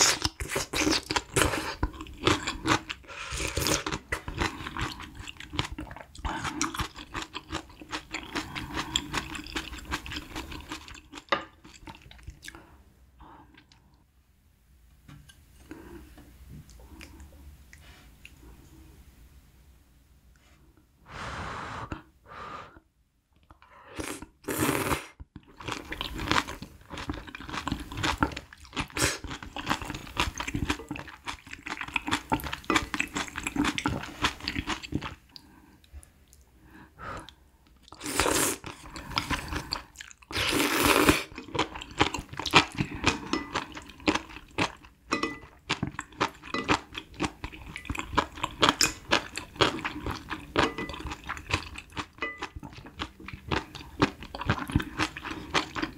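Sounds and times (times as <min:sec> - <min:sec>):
wet chewing and crunching: 0:00.0 - 0:12.6, 0:25.4 - 0:35.5, 0:37.8 - 0:55.9.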